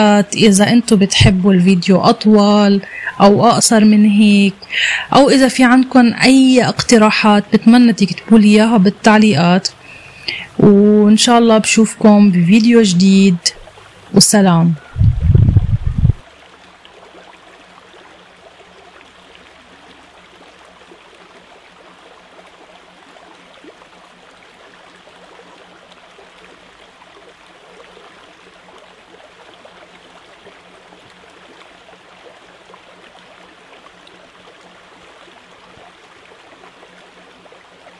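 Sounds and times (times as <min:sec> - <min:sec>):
low hum: 0:00.0 - 0:16.2.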